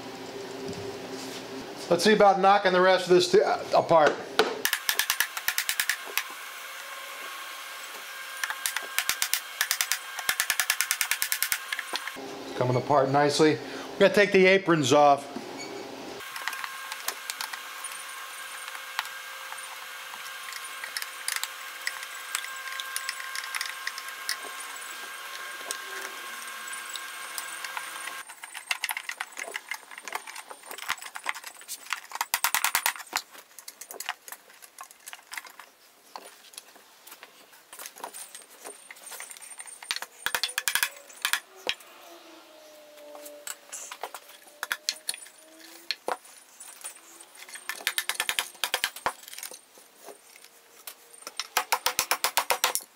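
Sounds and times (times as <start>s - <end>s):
wooden parts clicking and knocking: 4.6s - 6.3s, 8.4s - 12.2s, 18.6s - 41.8s, 43.4s - 52.9s.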